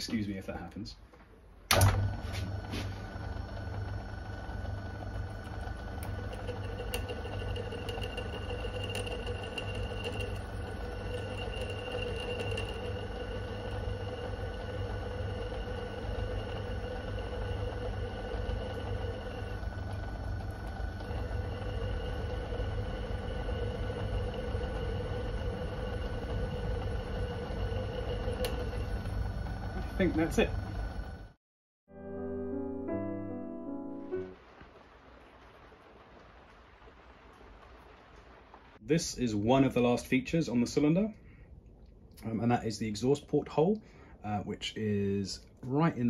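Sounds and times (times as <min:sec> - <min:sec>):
drill bit whine: 0:01.7 - 0:31.2
lathe motor hum: 0:01.7 - 0:31.4.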